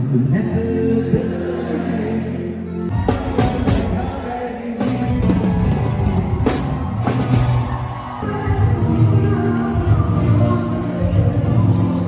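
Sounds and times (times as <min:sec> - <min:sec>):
live rock band playing: 0:02.7 - 0:12.0.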